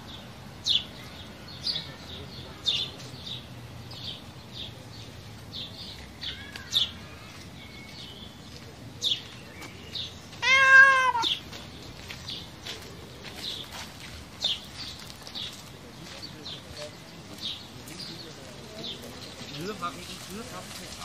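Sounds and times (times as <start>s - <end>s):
small birds chirping: 0.0s - 21.0s
cat meowing: 10.4s - 11.4s.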